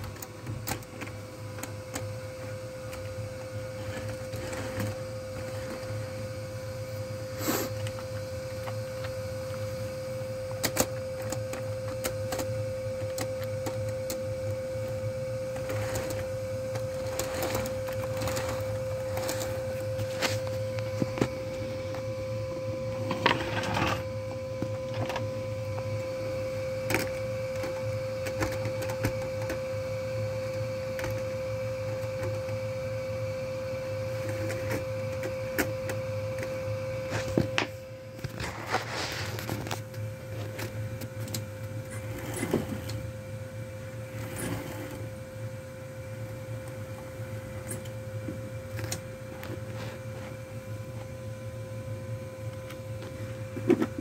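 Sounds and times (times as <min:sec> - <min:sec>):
model train motor whine: 0:00.0 - 0:51.0
low hum: 0:01.6 - 0:54.0.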